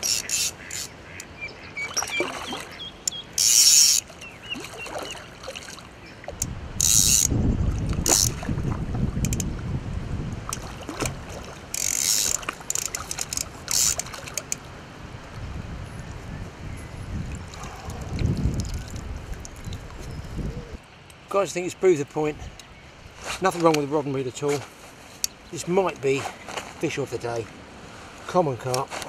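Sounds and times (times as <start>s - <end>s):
fishing reel ratchet buzzing: 0.0s - 0.9s, 3.1s - 4.0s, 6.8s - 7.4s, 8.1s - 8.3s, 11.7s - 14.6s.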